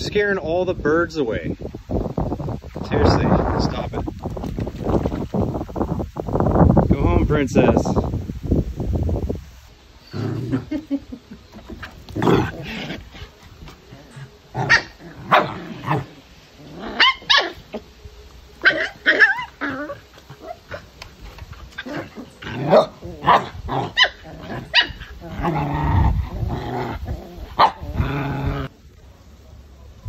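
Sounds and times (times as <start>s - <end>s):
dogs barking and yipping: 11.4s - 17.9s, 18.6s - 21.0s, 21.6s - 28.7s.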